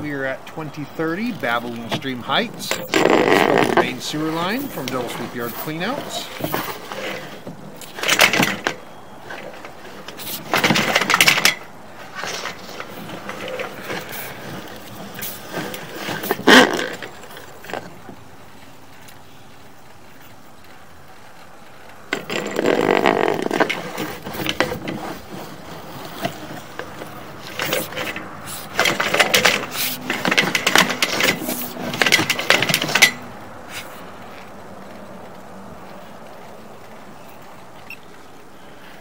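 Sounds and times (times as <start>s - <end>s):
push cable scraping and rattling: 0.0s - 19.6s, 21.4s - 37.6s
steady low background noise: 0.0s - 39.0s.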